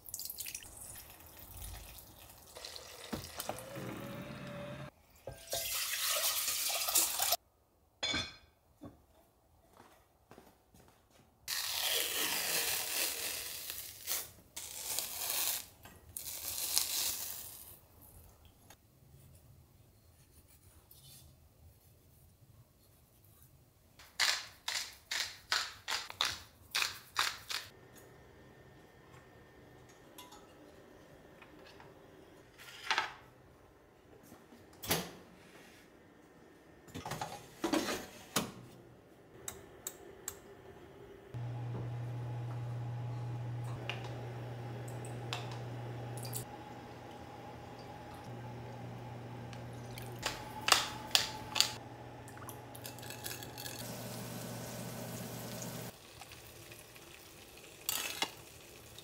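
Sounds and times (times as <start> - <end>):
dishes and utensils clinking: 8.0 - 8.5, 30.1 - 30.8.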